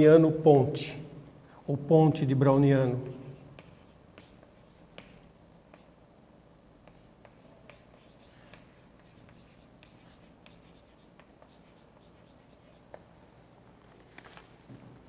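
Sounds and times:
chalk tapping and scratching: 0:02.8 - 0:06.0, 0:06.8 - 0:13.1.

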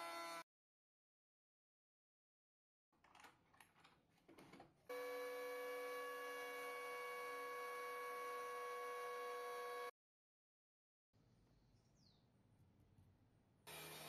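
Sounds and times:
faint clicks and knocks: 0:03.0 - 0:04.8
electric planer running: 0:04.9 - 0:09.9, 0:13.7 - 0:14.0.

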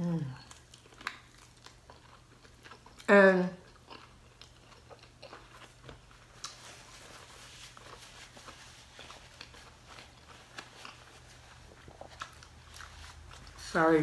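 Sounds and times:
paper napkin rustling: 0:06.2 - 0:14.0.

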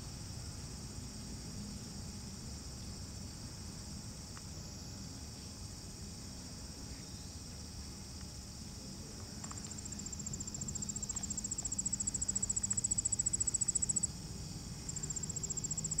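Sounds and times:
insect chorus: 0:00.0 - 0:16.0
insect pulsed high trill: 0:10.1 - 0:14.1, 0:14.8 - 0:16.0.

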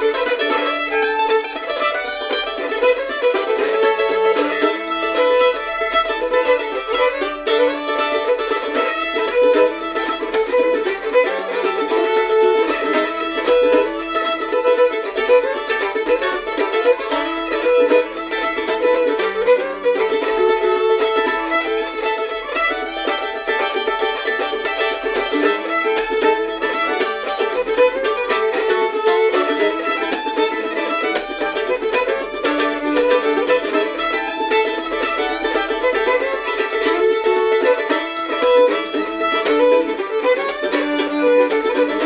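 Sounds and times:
fiddle playing: 0:00.0 - 0:42.0
mandolin playing: 0:00.0 - 0:42.0.

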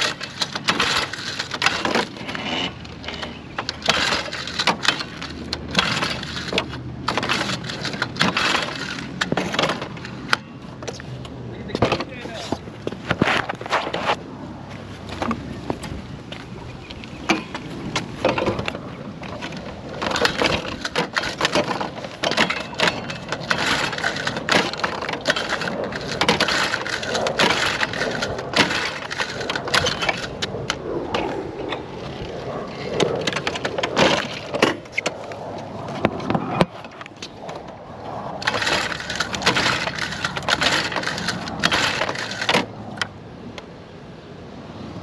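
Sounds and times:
small engine pull-start attempts: 0:00.0 - 0:10.4, 0:19.4 - 0:30.4, 0:38.4 - 0:42.7
starter cord rasping: 0:00.0 - 0:10.4, 0:17.3 - 0:30.8, 0:38.4 - 0:42.7.

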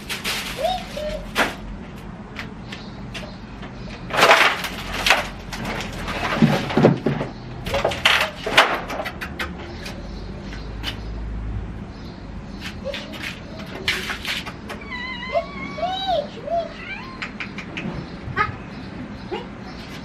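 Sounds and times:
plastic bag rustling: 0:00.0 - 0:01.7
boxes knocking and thudding: 0:04.0 - 0:09.8.

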